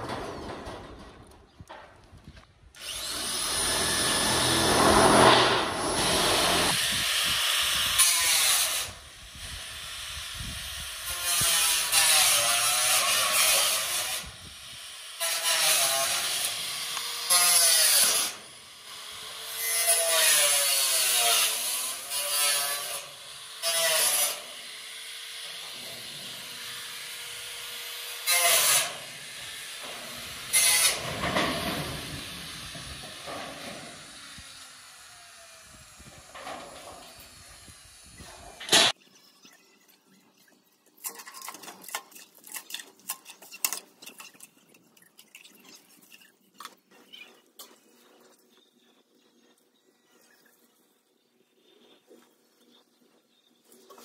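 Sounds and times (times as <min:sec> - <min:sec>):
power tool running in bursts: 0:02.8 - 0:06.9.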